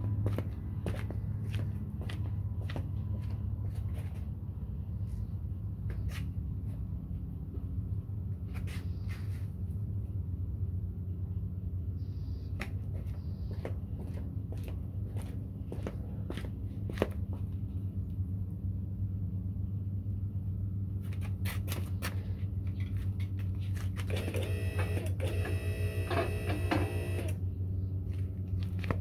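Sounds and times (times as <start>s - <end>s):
flip-flop footsteps on concrete: 0.0s - 4.4s, 5.0s - 7.7s, 8.5s - 9.5s, 12.6s - 17.8s, 21.0s - 24.1s, 28.0s - 29.0s
steady low hum: 0.0s - 29.0s.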